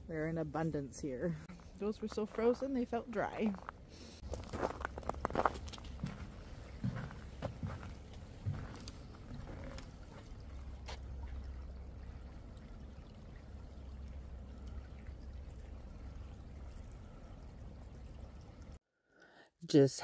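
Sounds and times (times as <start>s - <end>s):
creek trickling over stones: 0.0s - 18.8s
footsteps on wooden footbridge: 3.5s - 11.4s.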